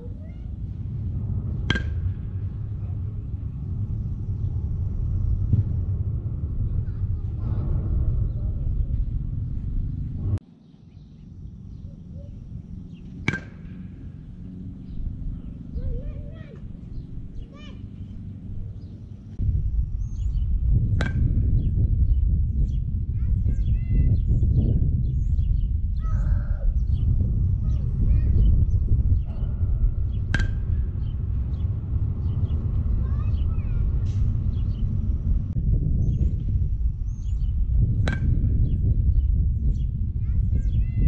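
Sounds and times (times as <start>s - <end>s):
birds chirping: 0.0s - 41.0s
wind rumble on microphone: 0.0s - 41.0s
bat cracking a ball: 1.1s - 2.6s, 13.2s - 14.2s, 20.9s - 21.5s, 30.3s - 30.8s, 38.0s - 38.7s
bat cracking baseball: 13.2s - 14.0s, 30.3s - 30.8s.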